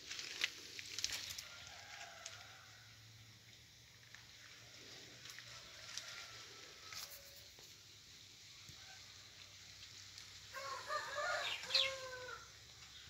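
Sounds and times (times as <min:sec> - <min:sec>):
rooster crowing: 0:01.4 - 0:03.1, 0:05.5 - 0:07.6, 0:10.5 - 0:12.6.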